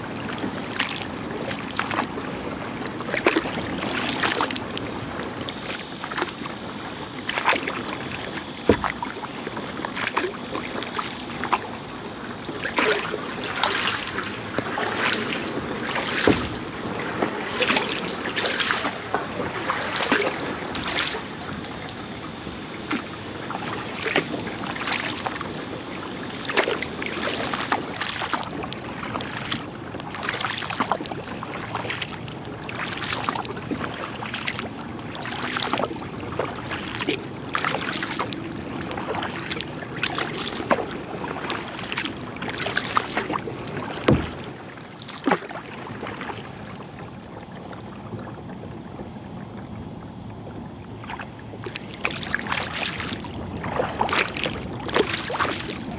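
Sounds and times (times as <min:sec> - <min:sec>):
water washing along hull: 0:00.0 - 0:55.9
paddle splashing into water: 0:00.1 - 0:11.8, 0:12.4 - 0:47.1, 0:50.4 - 0:55.9
sharp thump: 0:44.0 - 0:44.4.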